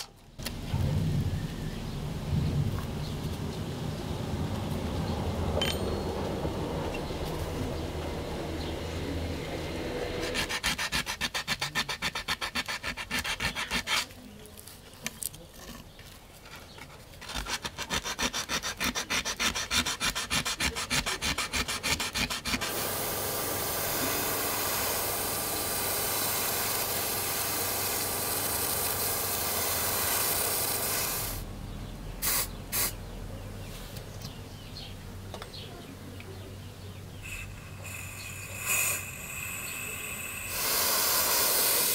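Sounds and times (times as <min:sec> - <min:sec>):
sandpaper rubbing on metal: 0:10.2 - 0:14.2, 0:17.2 - 0:22.8
spray paint can hissing: 0:18.1 - 0:31.4, 0:32.2 - 0:33.0, 0:37.2 - 0:41.9.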